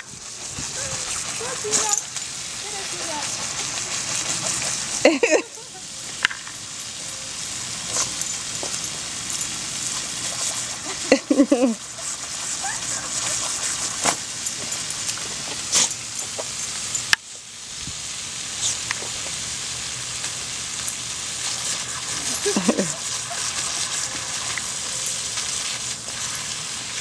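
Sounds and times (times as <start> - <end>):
hose water spraying: 0.0 - 27.0
dog biting at water spray: 0.6 - 5.1.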